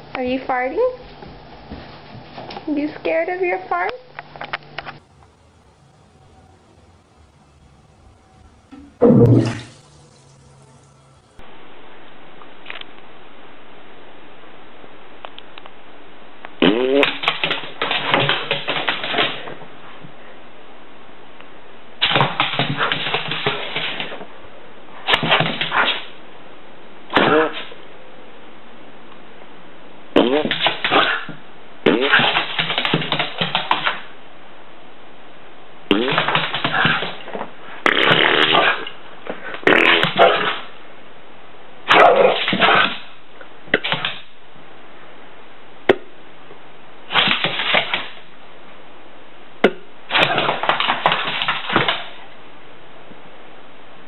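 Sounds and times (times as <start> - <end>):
raspberry noises blown through lips: 8.7 - 9.8, 16.6 - 17.2, 30.2 - 30.6, 35.9 - 36.9, 37.8 - 38.8, 39.6 - 40.2.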